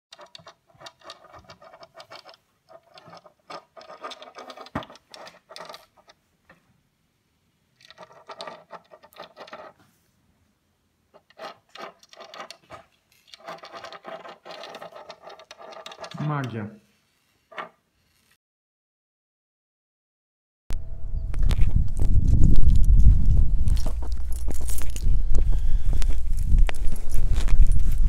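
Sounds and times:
chess piece scraping on wooden board: 0.2s - 6.2s, 7.8s - 9.8s, 11.2s - 16.5s, 17.1s - 18.4s.

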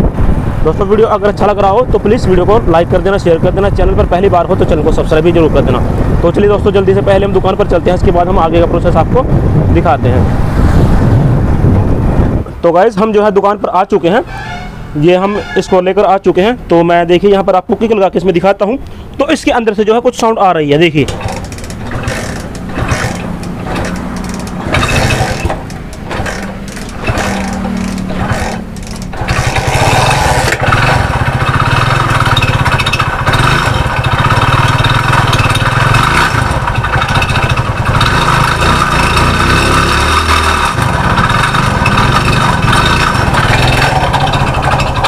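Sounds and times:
motorcycle engine kick-started: 21.0s - 45.0s.

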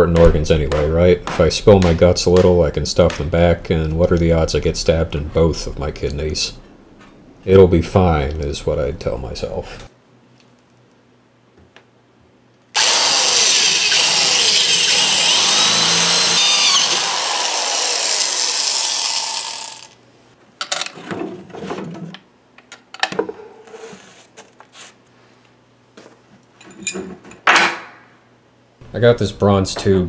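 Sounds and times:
power drill boring into wood: 12.8s - 20.0s.

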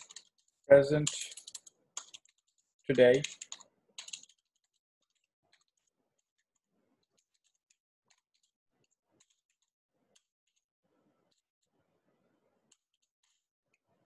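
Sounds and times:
faint keyboard keystrokes: 0.0s - 5.9s.

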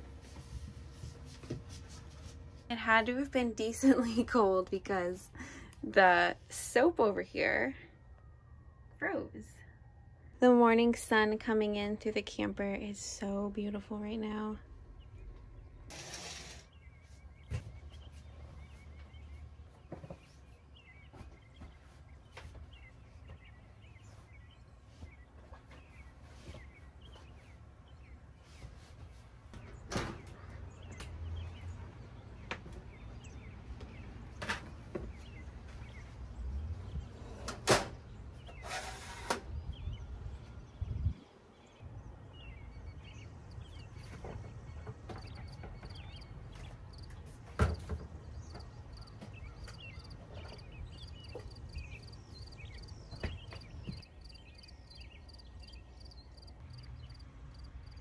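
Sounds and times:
rattling scrape: 15.9s - 16.7s.

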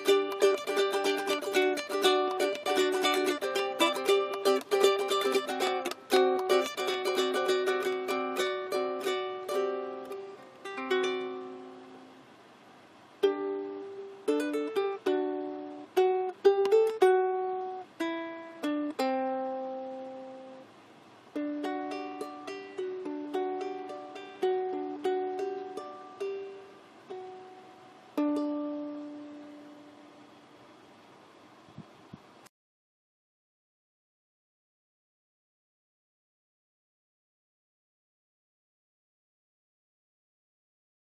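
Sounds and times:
ukulele melody: 0.0s - 12.3s, 13.0s - 30.4s.

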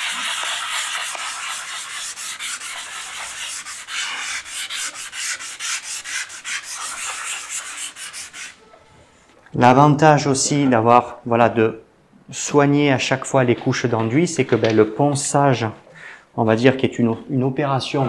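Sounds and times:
hand sanding filler: 0.0s - 8.6s.

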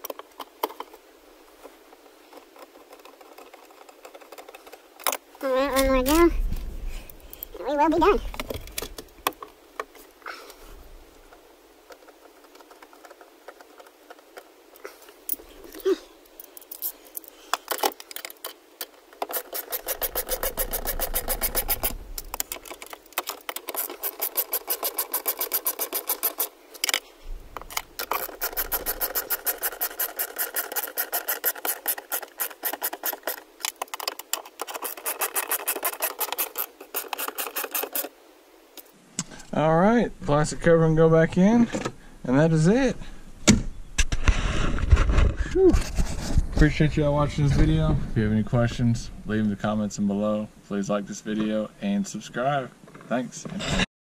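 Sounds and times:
hand ratchet clicking: 19.2s - 27.0s, 28.0s - 38.1s.

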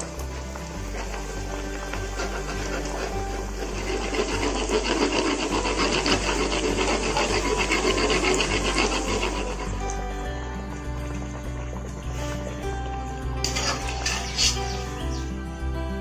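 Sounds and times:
buns deep-frying in hot oil: 0.0s - 15.5s
background music with bass line: 0.0s - 16.0s
slotted spoon splashing oil: 13.4s - 14.8s.

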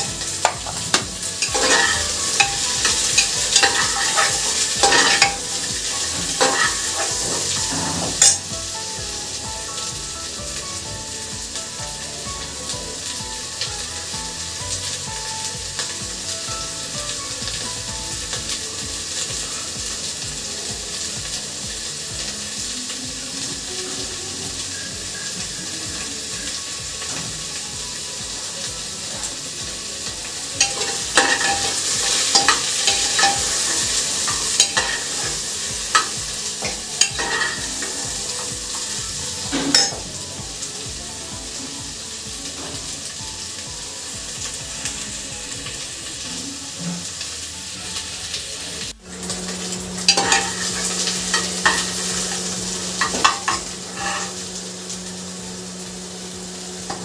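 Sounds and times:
food sizzling in hot oil: 0.0s - 57.0s
metal ladle scraping pot: 0.4s - 5.5s, 6.2s - 8.4s, 30.6s - 37.6s, 50.0s - 51.9s, 53.0s - 54.4s.

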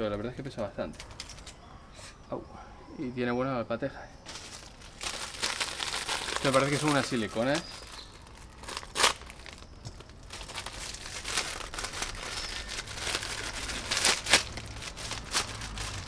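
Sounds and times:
plastic bag crinkling and tearing: 4.3s - 16.0s.

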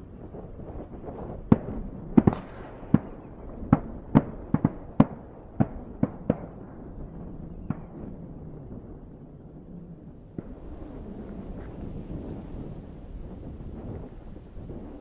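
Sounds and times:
wind noise: 0.0s - 15.0s
shotguns firing with echo: 1.5s - 6.8s, 10.3s - 12.9s.

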